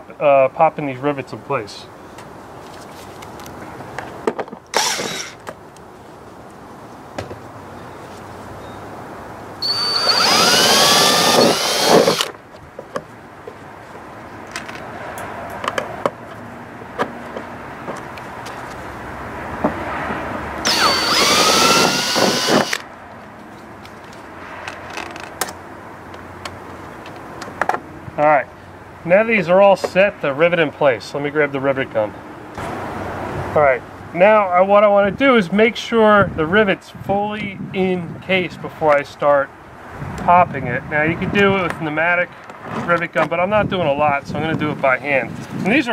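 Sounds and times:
cordless drill running: 0:04.8 - 0:05.4, 0:09.6 - 0:12.3, 0:20.6 - 0:22.8.

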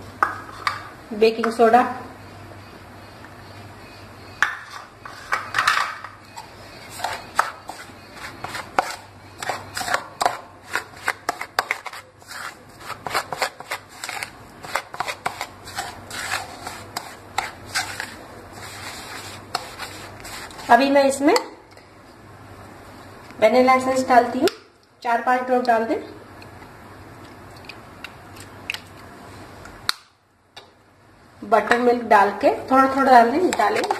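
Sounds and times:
spoon scraping a ceramic bowl: 0:04.4 - 0:20.7.

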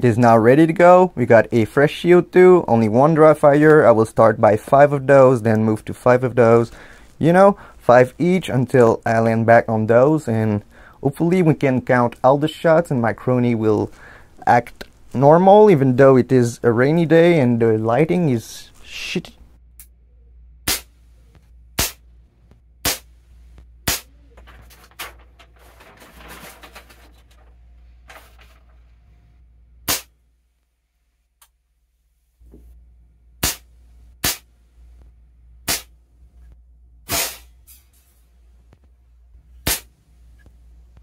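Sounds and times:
air pistol shots: 0:20.6 - 0:20.9, 0:21.8 - 0:22.0, 0:22.8 - 0:23.1, 0:23.8 - 0:24.1, 0:29.9 - 0:30.1, 0:33.4 - 0:34.5, 0:35.7 - 0:35.9, 0:37.1 - 0:37.5, 0:39.6 - 0:39.9.

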